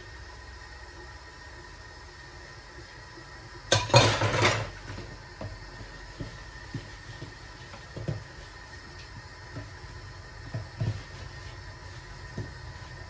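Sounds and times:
plastic dishes clattering in rack: 3.7 - 4.8.

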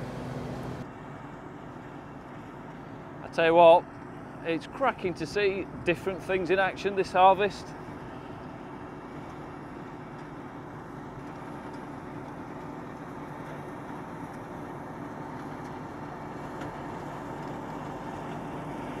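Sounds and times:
combine harvester droning: 0.0 - 19.0
tractor engine: 0.0 - 19.0.

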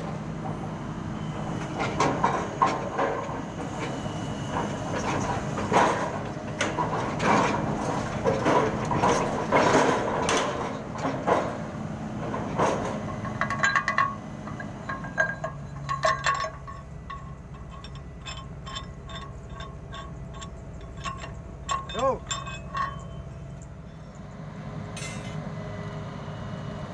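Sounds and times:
drilling rig engine clattering: 0.1 - 25.4
metal-on-metal clinks and taps: 13.0 - 23.8.

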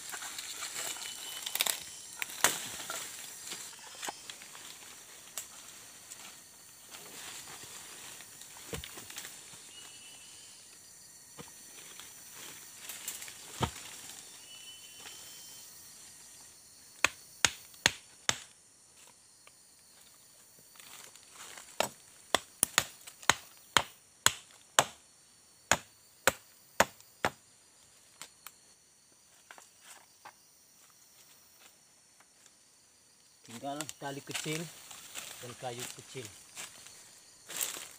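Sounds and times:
machete chopping wood: 17.0 - 18.5, 21.7 - 25.0, 25.7 - 27.4.

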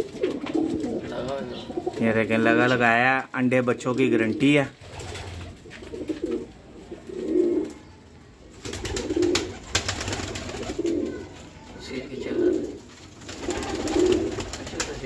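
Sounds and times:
pigeon cooing: 0.0 - 2.8, 4.1 - 15.0.

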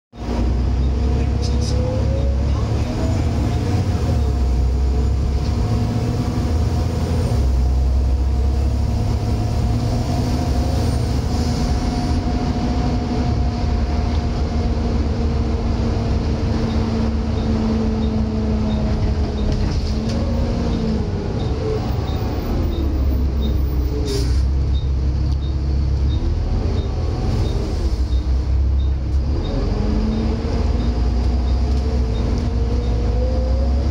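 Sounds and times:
diesel bus engine rumble: 0.1 - 33.9.

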